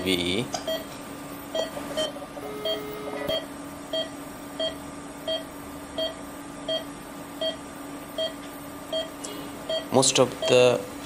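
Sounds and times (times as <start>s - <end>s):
low hum: 1.5s - 3.6s
medical equipment beeping: 1.5s - 7.6s
brief lower tone: 1.6s - 3.5s.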